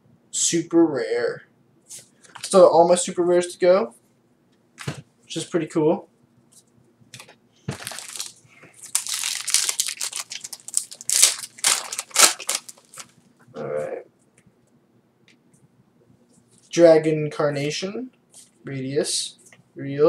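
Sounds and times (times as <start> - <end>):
foil wrapper crinkling and tearing: 7.8 - 13.2.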